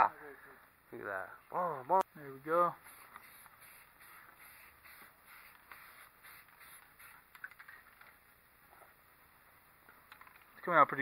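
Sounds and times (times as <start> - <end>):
aerosol spray can hissing: 2.8 - 7.8.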